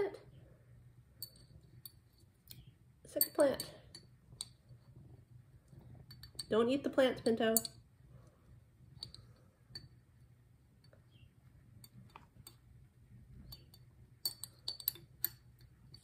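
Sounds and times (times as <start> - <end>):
metal hook clinking on glass: 1.2 - 2.0, 6.1 - 7.8, 13.4 - 16.0.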